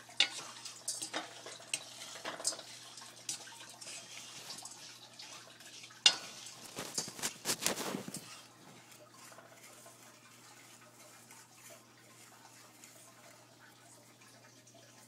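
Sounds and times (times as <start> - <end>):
utensil scraping a saucepan: 0.0 - 14.3
utensil knocking against pan: 0.2 - 2.7.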